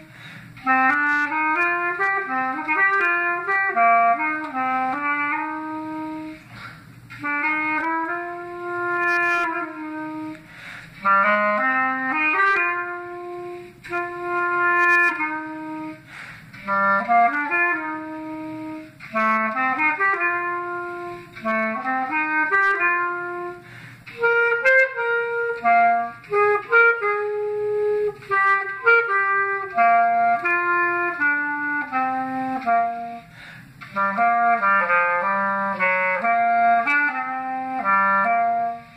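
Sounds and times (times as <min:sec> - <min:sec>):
solo clarinet melody: 0:00.0 - 0:38.9.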